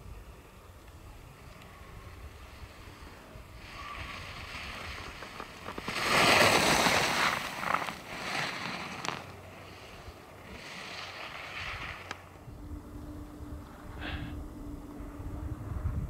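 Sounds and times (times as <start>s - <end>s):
skis scraping on snow: 1.2s - 12.5s, 13.6s - 14.3s.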